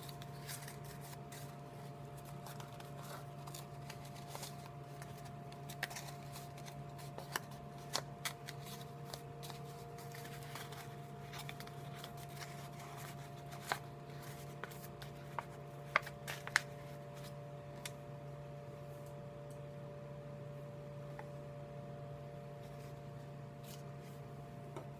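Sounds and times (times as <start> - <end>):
paper rustling: 0.0 - 17.9, 23.6 - 24.2
paper crackles: 0.0 - 18.0.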